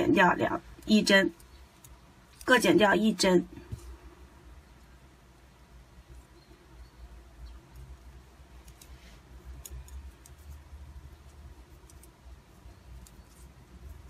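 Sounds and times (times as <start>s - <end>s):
knitting needles clicking: 0.7s - 2.6s, 7.6s - 14.0s.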